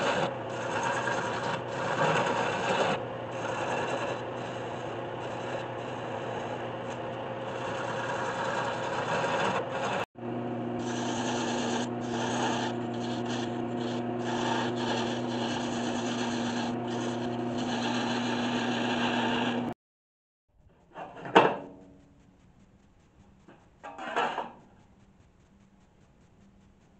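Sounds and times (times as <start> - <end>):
lathe motor hum: 0.0 - 19.8
lathe tool scraping wood: 0.0 - 19.8, 23.8 - 24.7.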